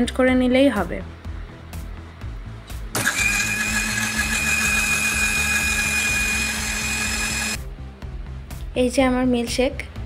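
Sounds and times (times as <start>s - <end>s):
electric blender motor whine: 2.9s - 7.6s.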